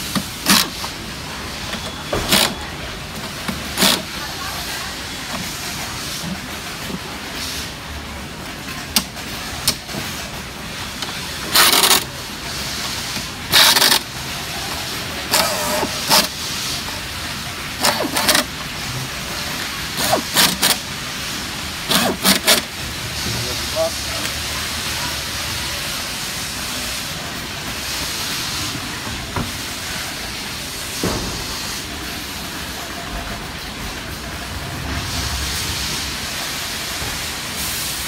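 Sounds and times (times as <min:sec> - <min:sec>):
pneumatic driver bursts: 0:00.0 - 0:01.0, 0:01.7 - 0:02.6, 0:03.8 - 0:04.1, 0:11.5 - 0:12.1, 0:13.5 - 0:14.1, 0:15.3 - 0:16.4, 0:17.8 - 0:18.5, 0:20.0 - 0:20.9, 0:21.9 - 0:22.7.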